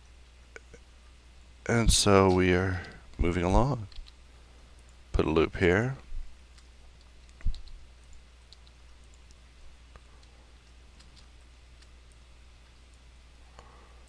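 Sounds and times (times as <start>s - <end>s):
mouse and keyboard clicks: 3.9s - 4.2s, 6.6s - 7.8s, 11.0s - 11.9s.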